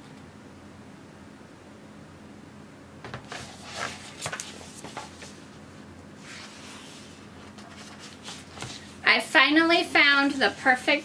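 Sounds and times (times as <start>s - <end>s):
paper pages rustling: 3.2s - 5.5s, 6.2s - 9.0s.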